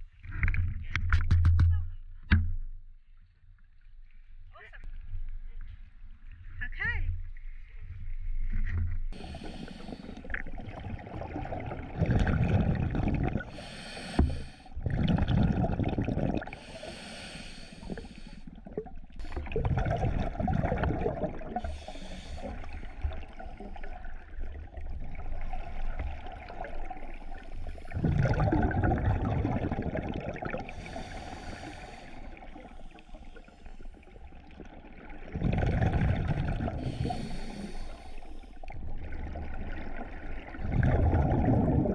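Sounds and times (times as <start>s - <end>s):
regulator inhalation hiss: 9.2s - 10.3s, 13.4s - 14.7s, 16.5s - 18.5s, 21.6s - 22.8s, 30.7s - 32.4s, 36.8s - 38.6s
exhaled bubbles rushing: 9.2s - 16.8s, 17.8s - 37.6s, 38.6s - 41.9s.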